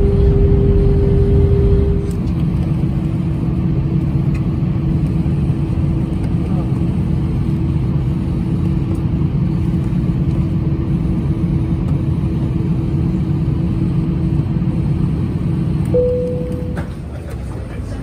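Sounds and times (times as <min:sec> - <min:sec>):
airliner cabin rumble: 0:00.0 - 0:18.0
constant hum: 0:00.0 - 0:18.0
single clear tone: 0:15.9 - 0:16.9.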